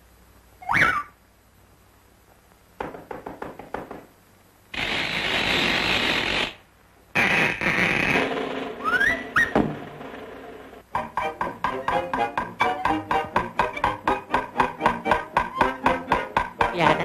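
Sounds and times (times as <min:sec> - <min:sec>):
rushing hissing noise: 0:04.7 - 0:10.9
thin whistle-like tone: 0:08.8 - 0:09.6
cartoon clicks and knocks: 0:11.0 - 0:17.0.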